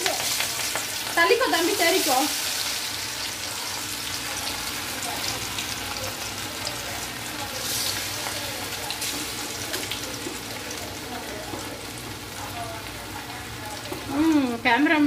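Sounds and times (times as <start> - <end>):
chicken deep-frying in hot oil: 0.0 - 15.0.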